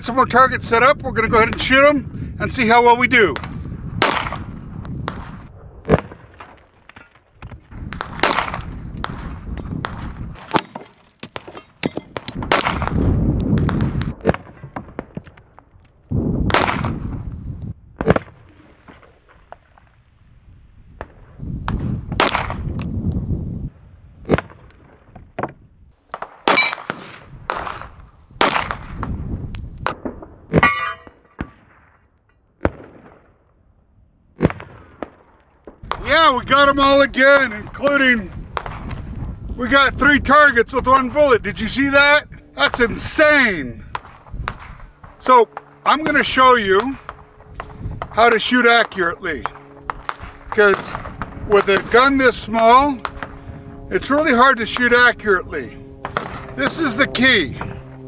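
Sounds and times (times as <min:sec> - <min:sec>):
pistol shots: 0:03.4 - 0:04.5, 0:07.9 - 0:13.0, 0:16.5 - 0:17.0, 0:21.7 - 0:22.6, 0:26.1 - 0:29.0, 0:43.8 - 0:53.4, 0:56.0 - 0:57.8.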